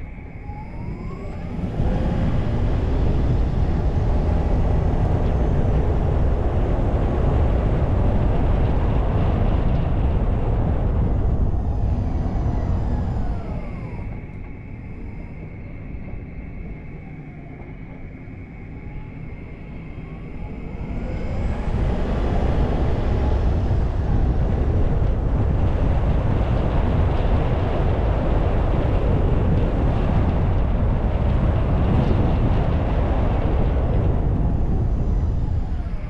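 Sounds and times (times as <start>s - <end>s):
car driving rumble: 0.9s - 14.7s.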